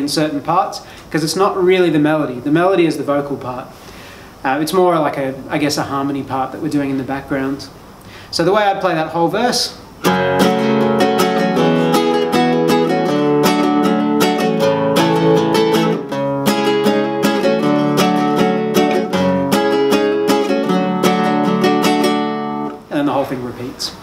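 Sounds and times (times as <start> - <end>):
classical guitar strumming: 10.0 - 22.9.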